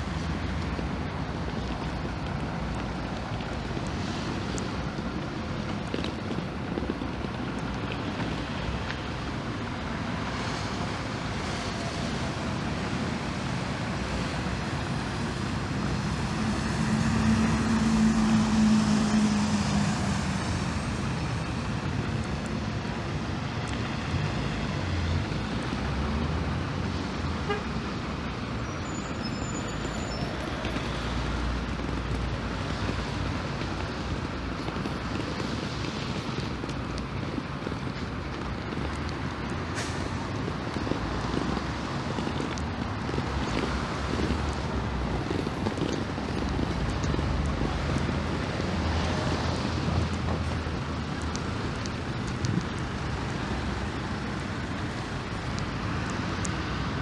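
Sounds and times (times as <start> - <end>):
road traffic: 0.0 - 57.0
vehicle passing close: 14.2 - 22.3.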